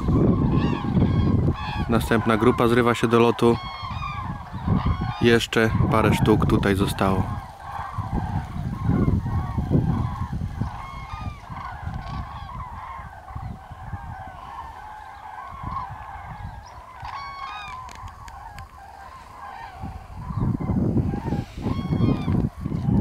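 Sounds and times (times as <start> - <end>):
cranes trumpeting calls: 0.0 - 23.0.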